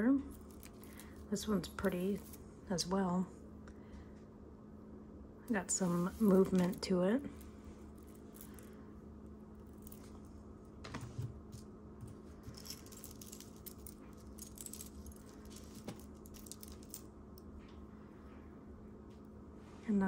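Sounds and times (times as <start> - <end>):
metal jewelry clinking: 0.3 - 1.3, 12.3 - 17.1.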